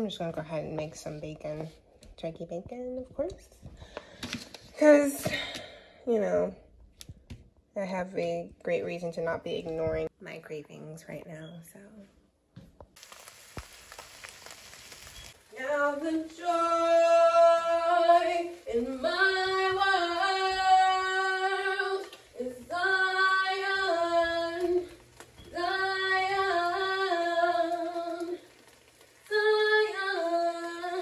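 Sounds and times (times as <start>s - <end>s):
woman singing unaccompanied: 15.4s - 28.5s, 29.3s - 31.0s.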